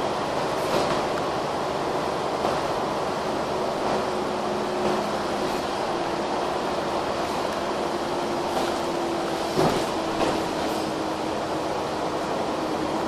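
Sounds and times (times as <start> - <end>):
bus diesel engine hum: 0.0 - 13.0
tyre and road noise: 0.0 - 13.0.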